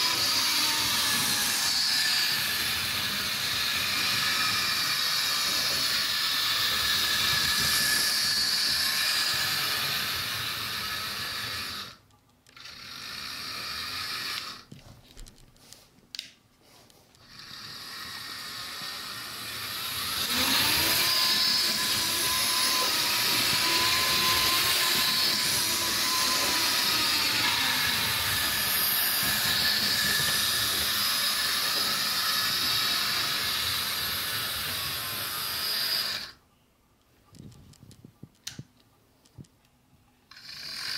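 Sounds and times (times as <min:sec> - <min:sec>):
model train whirring on track: 0:00.0 - 0:12.0, 0:17.2 - 0:36.4, 0:40.3 - 0:40.9
whining tone: 0:00.0 - 0:14.7, 0:17.2 - 0:36.4.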